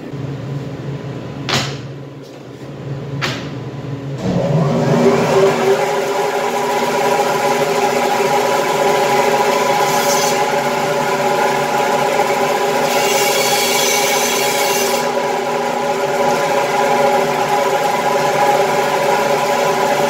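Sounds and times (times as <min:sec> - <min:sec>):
band saw motor hum: 0:04.2 - 0:20.0.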